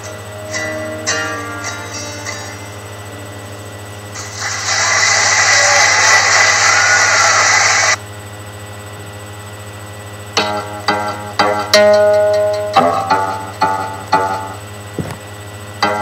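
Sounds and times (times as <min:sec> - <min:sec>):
guitar picking single notes: 0:00.0 - 0:03.9
loud steady hiss: 0:00.0 - 0:08.0
low hum: 0:00.0 - 0:08.0.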